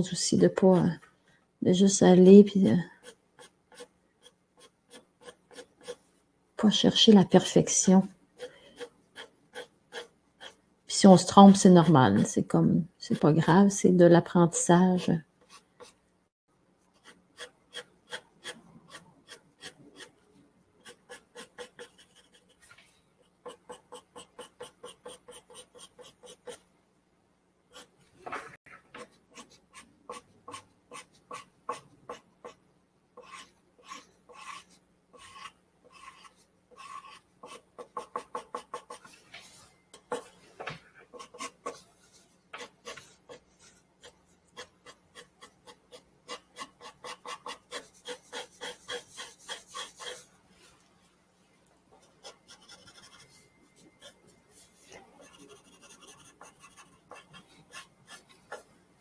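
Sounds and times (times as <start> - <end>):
pencil scratching on paper: 2.6 - 6.1, 7.4 - 12.3, 14.4 - 16.0, 16.9 - 26.7, 27.7 - 28.0, 28.9 - 32.6, 33.2 - 40.4, 41.0 - 50.3, 52.0 - 58.7.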